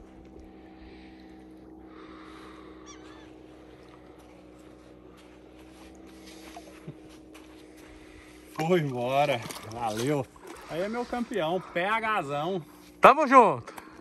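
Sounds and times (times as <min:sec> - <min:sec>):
low motor hum: 0:00.0 - 0:14.0
warbling bird call: 0:02.4 - 0:03.8.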